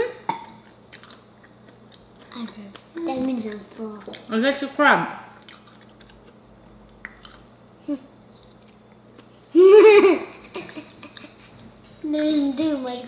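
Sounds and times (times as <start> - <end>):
eating sounds: 0.4 - 4.3, 5.3 - 9.5.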